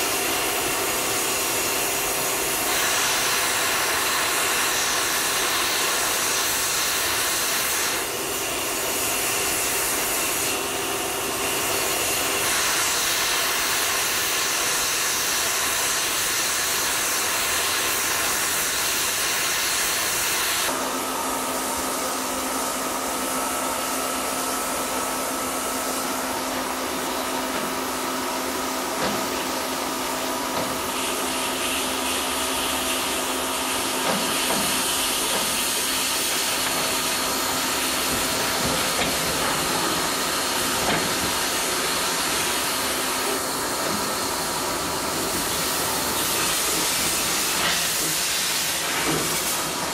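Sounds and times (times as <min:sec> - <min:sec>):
steam escaping: 0:00.0 - 0:10.6, 0:11.4 - 0:20.8, 0:25.8 - 0:49.9
train running noise: 0:33.8 - 0:49.9.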